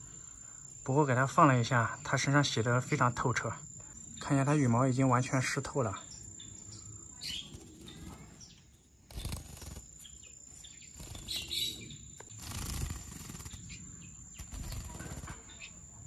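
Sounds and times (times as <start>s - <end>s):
soft bird chirps: 0.0s - 16.0s
bird feathers rustling and fluttering: 7.2s - 15.8s.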